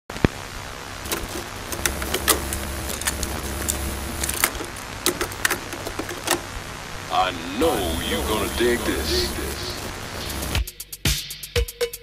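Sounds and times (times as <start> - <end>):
steady hiss: 0.4 - 10.6
sharp mechanical clicks: 1.1 - 6.6.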